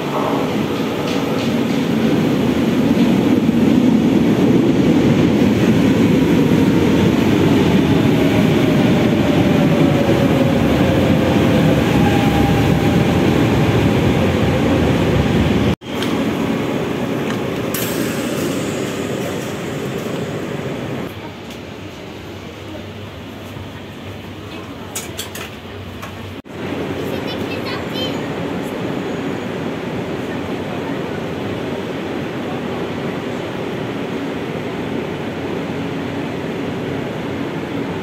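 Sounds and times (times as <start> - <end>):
train wheels rumbling: 0.0 - 22.1.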